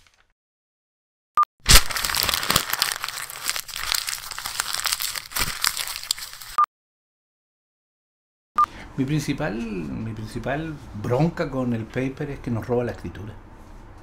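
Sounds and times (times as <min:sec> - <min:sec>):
paper crinkling and tearing: 0:00.0 - 0:00.3, 0:01.6 - 0:06.6.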